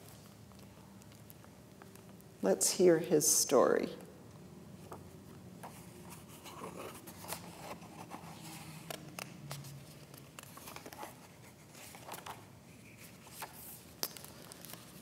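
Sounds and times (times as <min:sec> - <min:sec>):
book pages rustling: 0:04.8 - 0:15.0.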